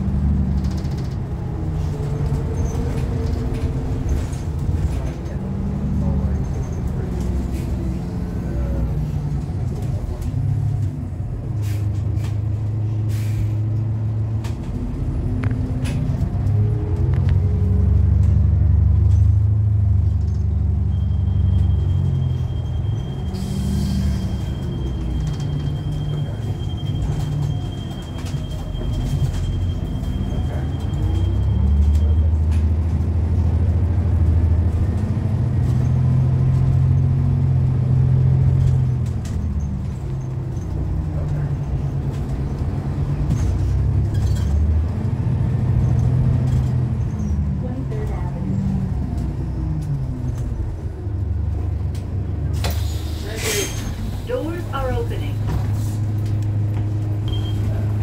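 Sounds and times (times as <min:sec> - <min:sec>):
bus engine: 0:00.0 - 0:58.0
air brake hiss: 0:13.1 - 0:13.6, 0:52.6 - 0:54.4.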